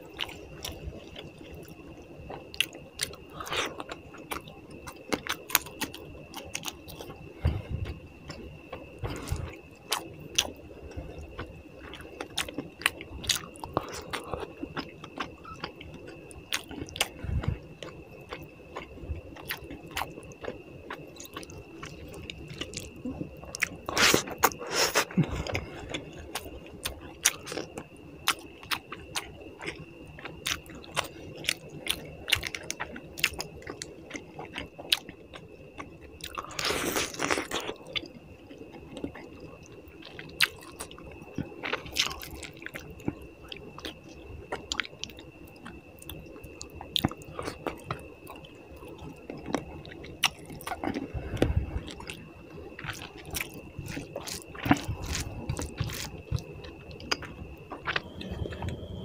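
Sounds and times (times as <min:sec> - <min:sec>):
faint steady high whine: 0:00.0 - 0:59.0
chewing and wet mouth smacks: 0:11.4 - 0:52.2, 0:52.8 - 0:58.8.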